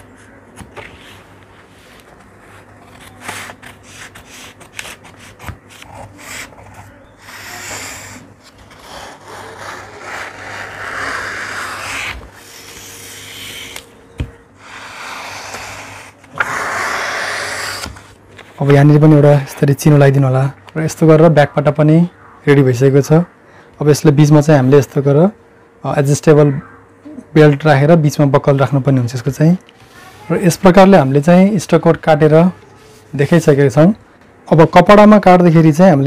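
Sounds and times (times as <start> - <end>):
paper rustling: 0.2 - 6.8.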